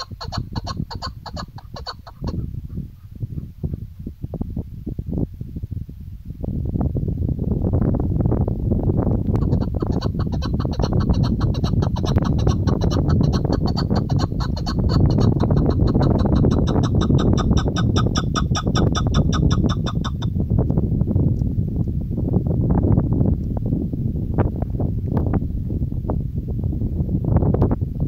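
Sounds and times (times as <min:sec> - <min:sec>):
partridge calling: 0:00.0 - 0:03.8, 0:09.4 - 0:20.3
wind rumble on microphone: 0:00.0 - 0:28.0.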